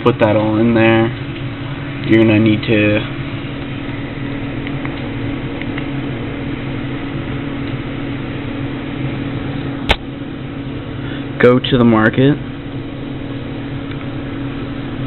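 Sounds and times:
low mechanical hum: 0.0 - 15.0
sharp click: 4.6 - 5.9.

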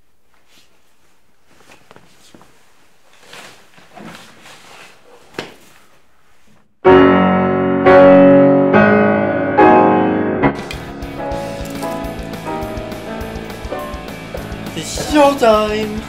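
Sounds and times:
faint knocks and rustles: 0.2 - 6.7
grand piano chords: 6.8 - 16.0.

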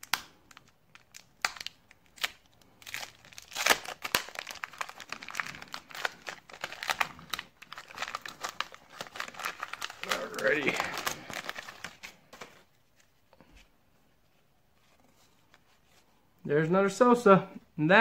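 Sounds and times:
foil wrapper crinkling: 0.0 - 12.6.

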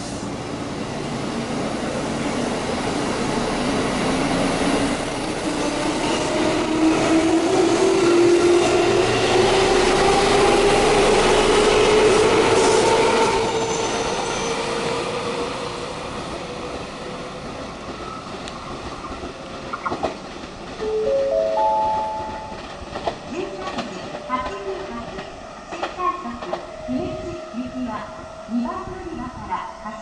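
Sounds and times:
train wheels rumbling on rail: 0.0 - 20.9, 22.4 - 30.0
rising four-note chime: 20.8 - 22.8.

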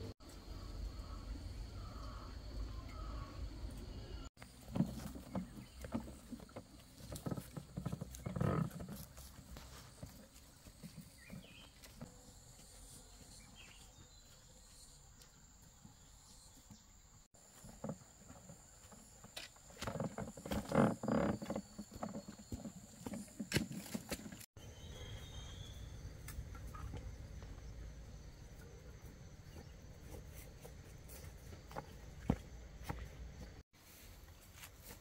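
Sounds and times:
footsteps on dirt trail: 4.4 - 15.4, 17.3 - 24.5, 29.4 - 35.0.

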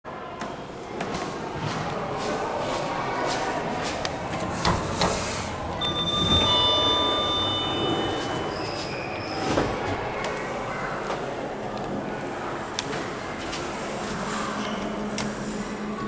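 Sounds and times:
lift doors sliding open: 4.1 - 11.7
two-note lift chime: 5.8 - 9.3.

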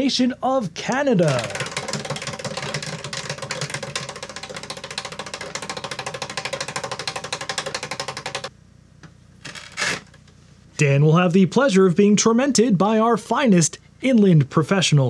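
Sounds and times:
prize wheel clicking: 1.0 - 8.5.

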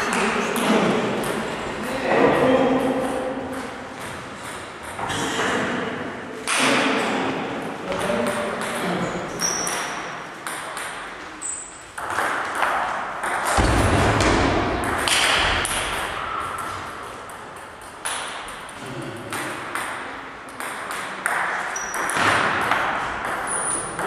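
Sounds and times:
table tennis balls clicking: 7.9 - 13.7, 14.8 - 24.0.

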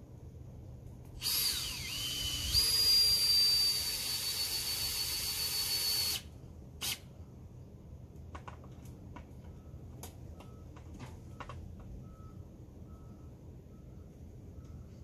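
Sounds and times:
power drill whining: 1.2 - 7.0.

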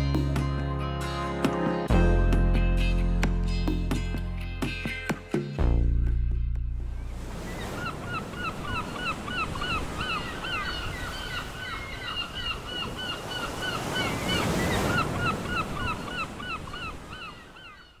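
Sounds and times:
flock of birds calling: 7.4 - 18.0.

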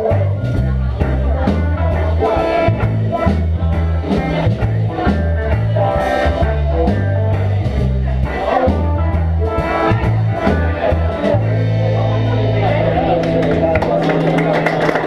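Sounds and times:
diners chatting: 0.0 - 15.0
live band with guitar and bass: 0.0 - 15.0.

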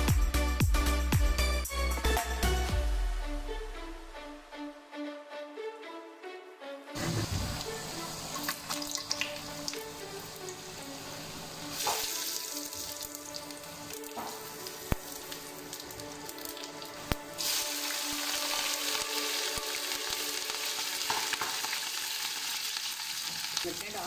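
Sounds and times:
hot oil sizzling in a pan: 7.0 - 24.0.

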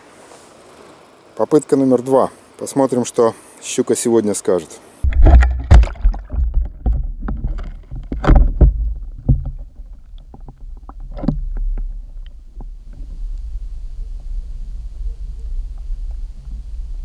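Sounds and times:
splashy clicks: 5.0 - 11.4
underwater water rumble: 5.0 - 17.0.

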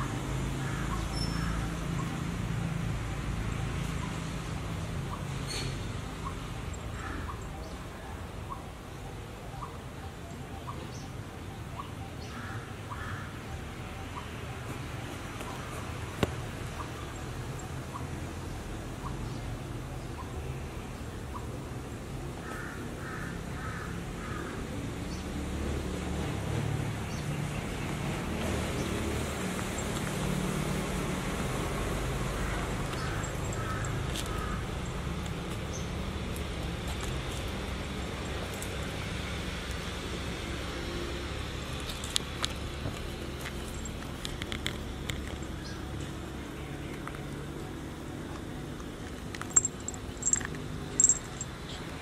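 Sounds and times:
low rumble of traffic: 0.0 - 52.0
crow cawing: 0.6 - 1.7, 7.0 - 7.4, 12.3 - 13.4, 22.4 - 24.6, 32.4 - 34.7.

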